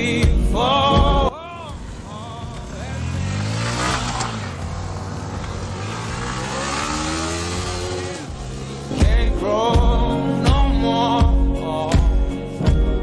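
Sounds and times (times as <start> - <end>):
engine revving: 1.6 - 9.9.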